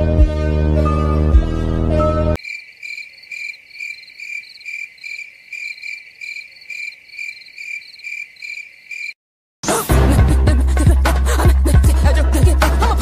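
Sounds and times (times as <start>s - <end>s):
crickets chirping: 2.4s - 9.2s.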